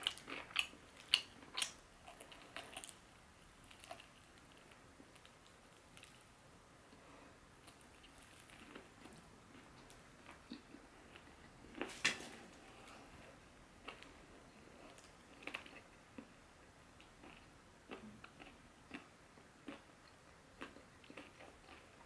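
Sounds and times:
chewing crispy chicken: 0.0s - 6.5s, 7.6s - 16.3s, 17.0s - 22.0s.

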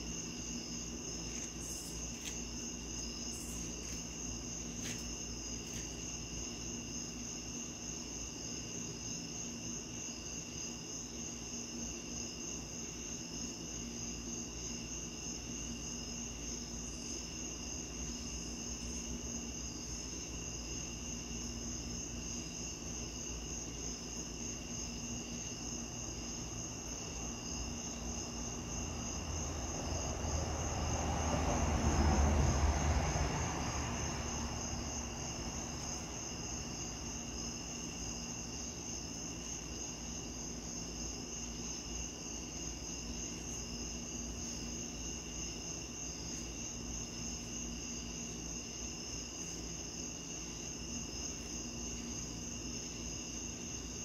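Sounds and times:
night insects chirping: 0.0s - 54.0s
vehicle passing: 28.8s - 37.1s.

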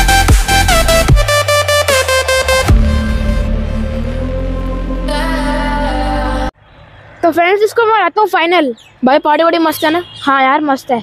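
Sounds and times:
electronic dance music: 0.0s - 6.5s.

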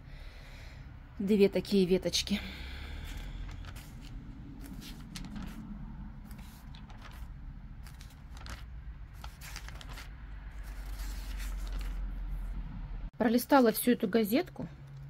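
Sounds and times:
low steady hum: 0.0s - 15.0s
brochure pages rustling: 2.8s - 12.6s.

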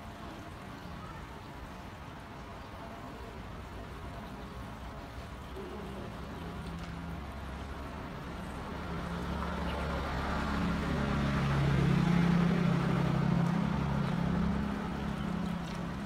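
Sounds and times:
low engine-like hum: 0.0s - 16.0s.

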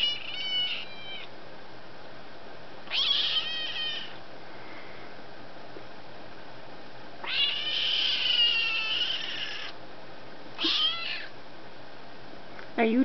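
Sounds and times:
kitten screaming meows: 0.0s - 1.3s, 2.9s - 4.2s, 7.2s - 9.8s, 10.6s - 11.3s.

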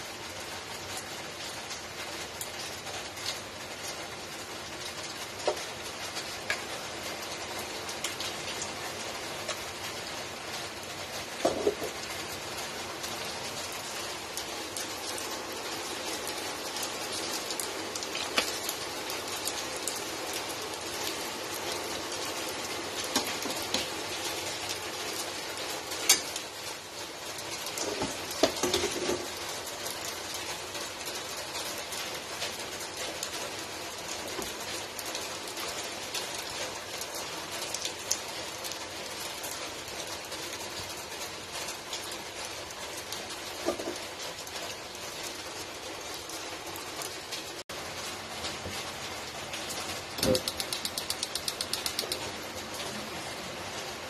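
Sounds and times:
metal tongs clinking on pot: 26.0s - 26.4s.

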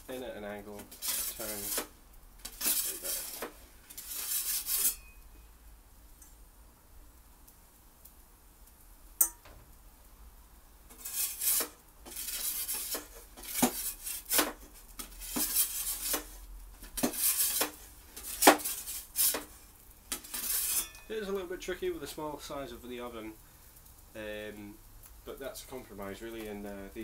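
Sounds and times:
metal peel scraping on stone: 0.8s - 5.2s, 10.9s - 21.2s
metal peel clinking: 2.4s - 5.4s, 20.1s - 21.2s.

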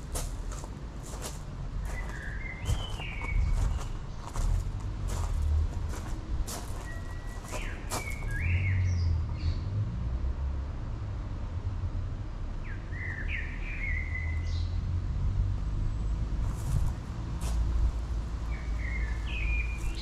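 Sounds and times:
steady low rumble: 0.0s - 8.4s
birds chirping: 1.1s - 6.0s, 6.6s - 9.7s.

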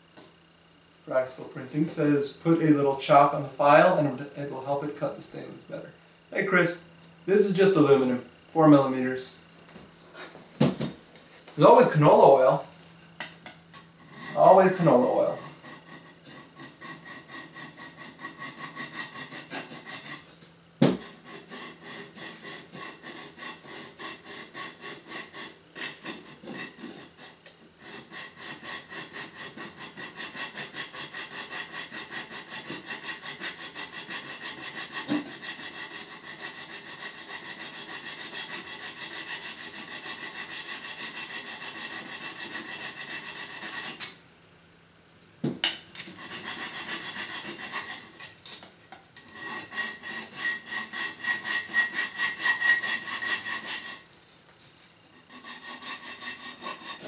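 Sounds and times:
file rasping on metal: 14.0s - 44.2s, 46.0s - 48.4s, 49.2s - 54.1s, 55.1s - 57.0s.

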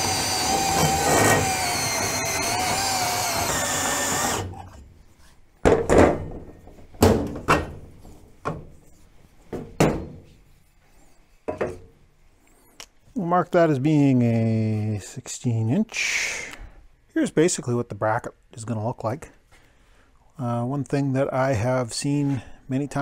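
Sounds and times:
band saw cutting steel: 0.0s - 4.6s
metal clanks and knocks: 5.6s - 8.8s, 9.5s - 10.4s.

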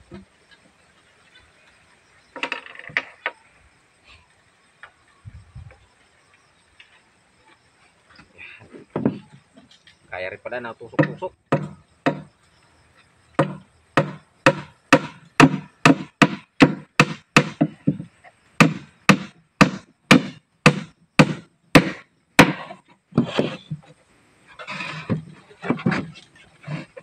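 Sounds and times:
hammer driving nails into wood: 13.4s - 17.7s, 18.6s - 23.6s.

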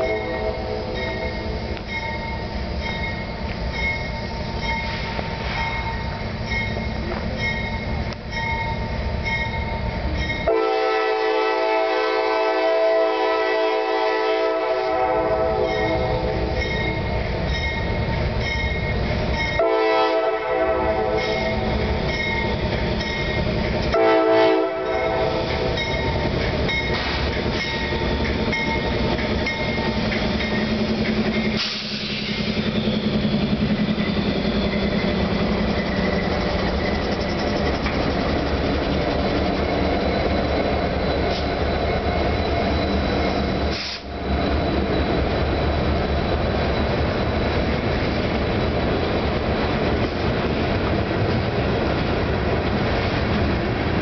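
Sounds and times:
train horn blasts: 0.0s - 1.5s, 10.4s - 16.6s, 19.6s - 21.7s, 23.9s - 25.8s
diesel locomotive engine rumble: 0.0s - 54.0s.

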